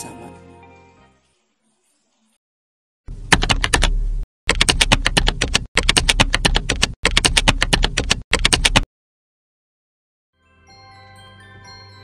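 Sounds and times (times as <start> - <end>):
keyboard typing: 3.3 - 8.9.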